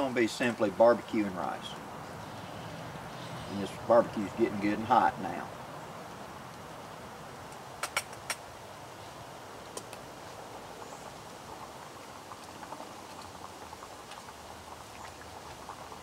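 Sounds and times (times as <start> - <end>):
sharp clicks: 7.5 - 8.4.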